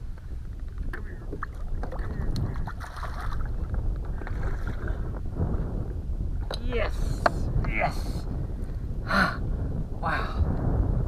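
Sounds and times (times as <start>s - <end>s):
water against boat hull: 0.0s - 5.3s
wind on microphone: 0.0s - 11.0s.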